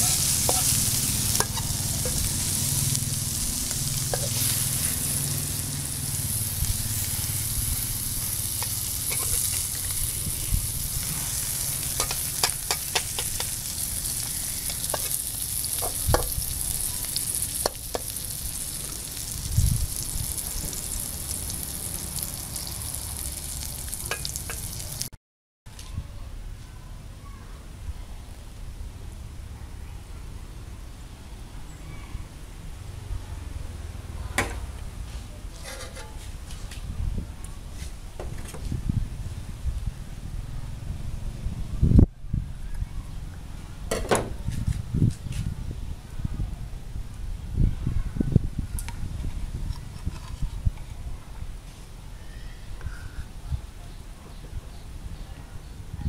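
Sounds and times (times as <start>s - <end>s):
metal spatula scraping a pan: 0.0s - 5.5s, 8.1s - 16.4s, 35.5s - 36.3s
omelette sizzling in a pan: 0.0s - 25.1s.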